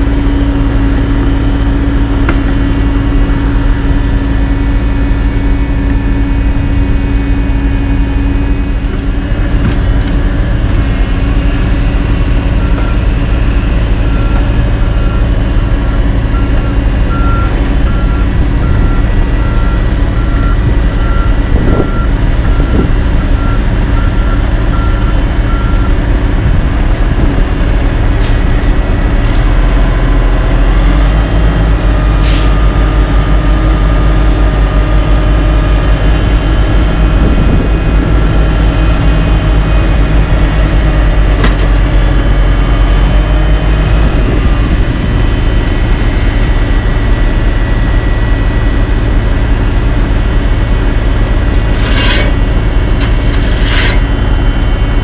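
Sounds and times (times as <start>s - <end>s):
truck diesel engine running: 0.0s - 55.0s
air brake hiss: 32.2s - 32.6s.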